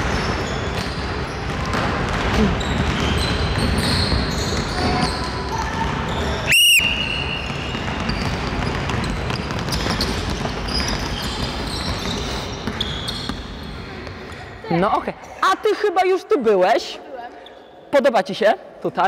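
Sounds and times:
basketballs bouncing on gym floor: 0.0 - 14.8
high-pitched whistle blast: 6.5 - 7.6.

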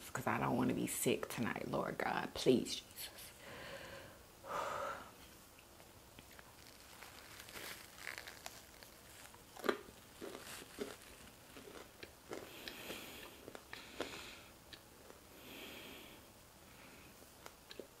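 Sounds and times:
chewing crunchy food: 6.2 - 15.2.

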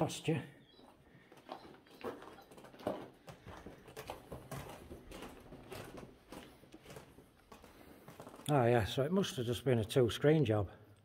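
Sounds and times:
footsteps crunching on gritty floor: 0.8 - 9.0.

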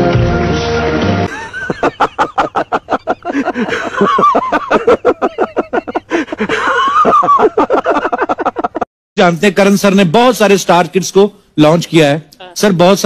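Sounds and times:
men laughing heartily: 1.3 - 8.9.

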